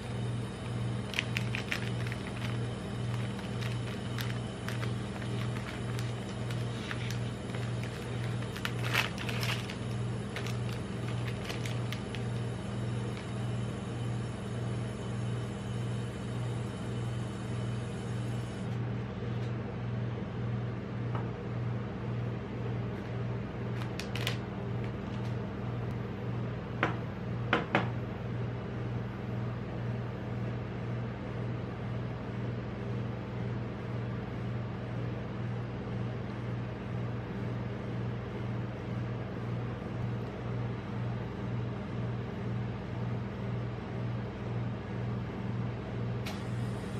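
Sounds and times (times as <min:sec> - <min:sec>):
pulsing low machine hum: 0:00.0 - 0:35.0
plastic wrapper crinkling: 0:01.1 - 0:12.5, 0:23.8 - 0:25.3.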